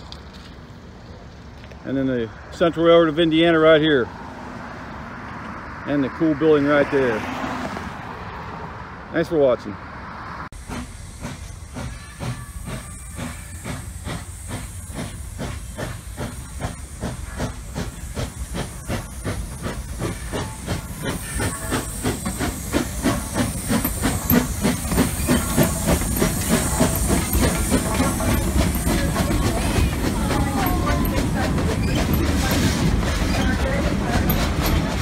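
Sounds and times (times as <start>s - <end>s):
steam hiss: 10.6s - 35.0s
steam locomotive chuffing: 10.6s - 35.0s.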